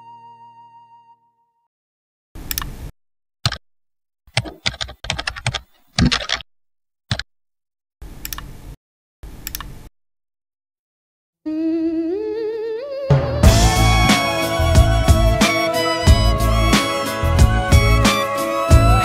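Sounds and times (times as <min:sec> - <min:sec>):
computer keyboard typing: 0:04.3 - 0:06.4.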